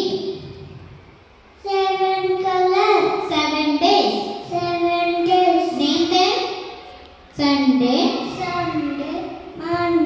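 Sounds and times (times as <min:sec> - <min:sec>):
child singing into a microphone: 0:07.4 - 0:10.0.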